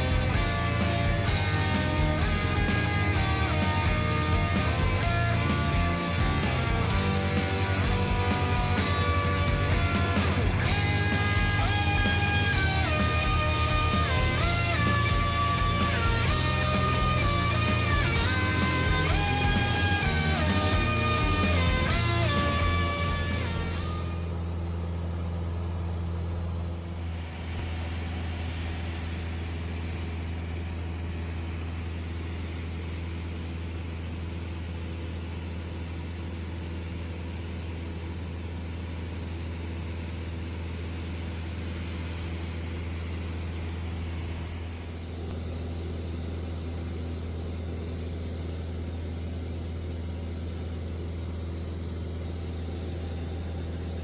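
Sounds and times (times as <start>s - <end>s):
propeller plane engine droning: 0.0s - 54.0s.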